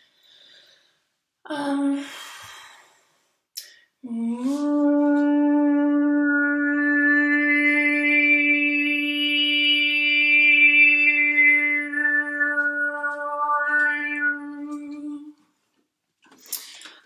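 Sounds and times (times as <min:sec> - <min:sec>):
breath: 0:00.0 - 0:01.2, 0:02.0 - 0:04.0
woman overtone singing: 0:04.0 - 0:15.4.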